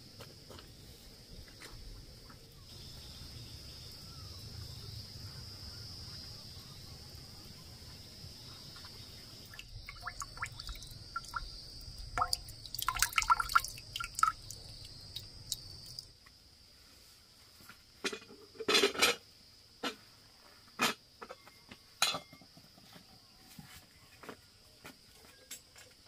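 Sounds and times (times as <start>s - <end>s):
high insect drone: 0.0s - 16.1s
water dripping into a trough: 8.8s - 16.1s.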